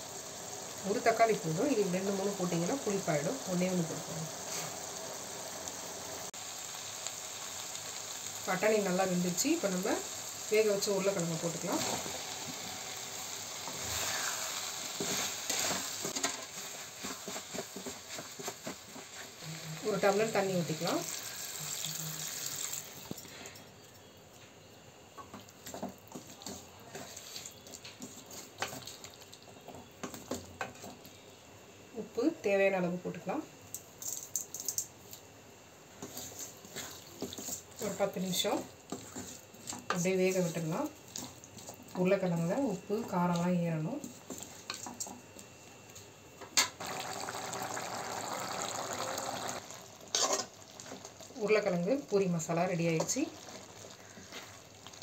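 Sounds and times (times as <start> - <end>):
water splashing into a pot: 20.8 - 23.2, 46.6 - 50.0
curry bubbling as it simmers: 46.6 - 55.0.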